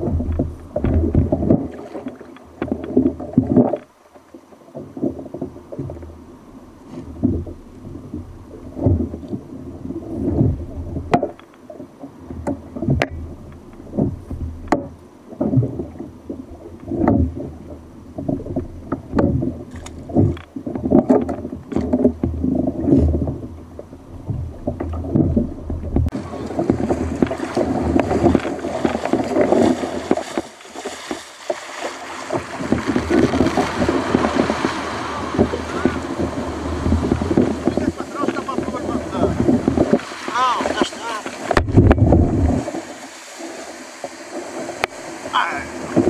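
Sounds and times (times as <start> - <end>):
water slapping against kayak hull: 0.0 - 46.0
breaking surf rushing: 26.1 - 46.0.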